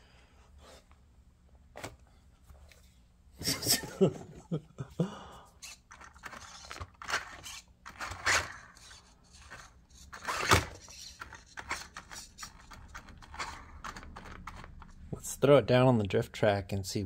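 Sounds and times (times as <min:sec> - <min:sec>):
toy truck motor bursts: 0:05.6 - 0:12.6.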